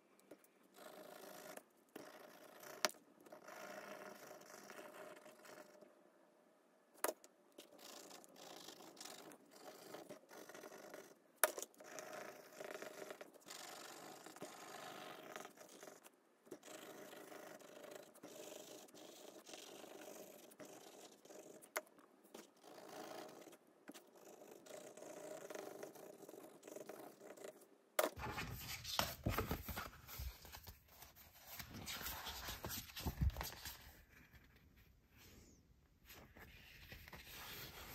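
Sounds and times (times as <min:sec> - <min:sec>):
paper book rustling: 0:28.2 - 0:34.8, 0:36.0 - 0:37.9
crayon scratching on paper: 0:36.4 - 0:37.9.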